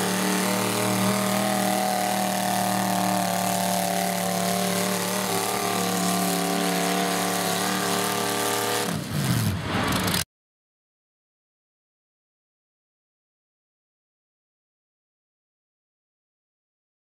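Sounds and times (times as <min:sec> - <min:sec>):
tractor engines running: 0:00.0 - 0:10.2.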